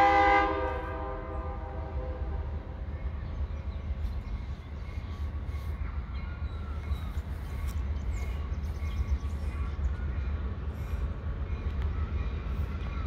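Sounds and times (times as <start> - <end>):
diesel train rumble: 0.0 - 13.0
birds chirping: 2.5 - 13.0.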